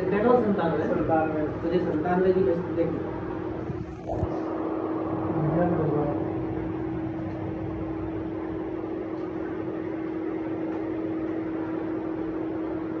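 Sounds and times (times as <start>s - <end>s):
steady machine hum: 0.0s - 13.0s
low rushing noise: 3.4s - 7.2s.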